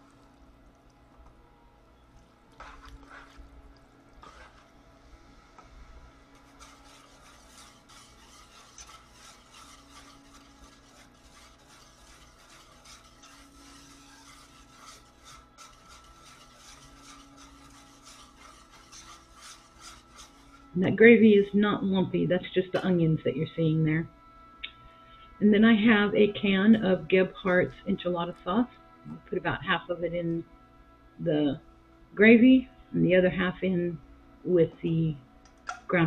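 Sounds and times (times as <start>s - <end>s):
spoon stirring meat in a skillet: 2.5s - 4.7s, 6.2s - 20.7s
whisk scraping a saucepan: 2.5s - 4.8s, 6.0s - 21.6s, 26.4s - 28.2s.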